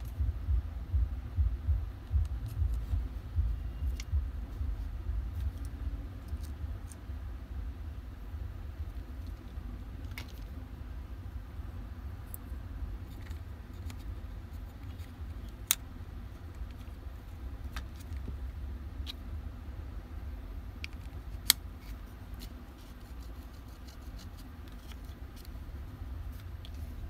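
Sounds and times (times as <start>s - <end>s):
low rumble: 0.0s - 17.7s.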